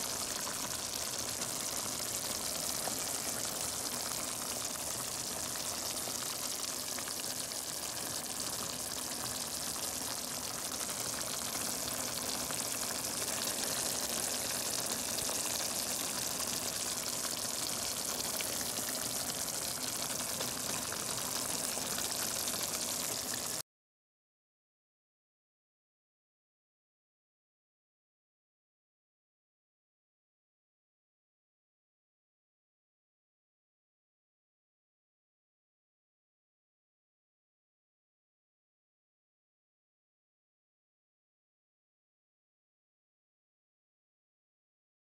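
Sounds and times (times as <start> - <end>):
stew sizzling and bubbling: 0.0 - 23.6.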